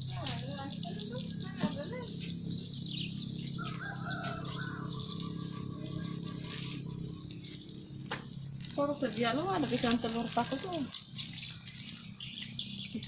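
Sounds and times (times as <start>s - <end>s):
rooster crowing: 3.5s - 6.0s, 10.2s - 11.0s.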